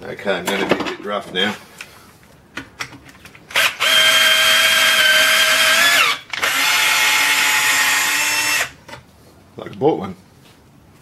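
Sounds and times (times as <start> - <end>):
cordless drill spinning: 3.5 - 8.8.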